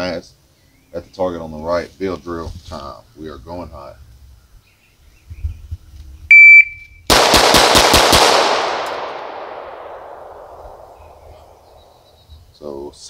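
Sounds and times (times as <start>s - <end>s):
shot timer beep: 6.3s - 7.0s
rapid pistol shots: 7.1s - 11.7s
echo of gunshots: 7.1s - 12.0s.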